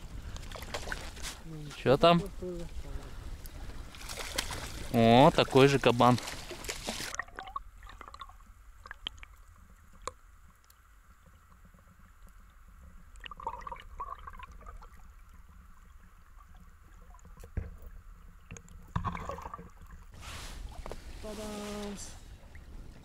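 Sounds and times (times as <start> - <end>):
muffled underwater rumble: 0.0 - 4.0
faint water gurgling: 0.0 - 23.0.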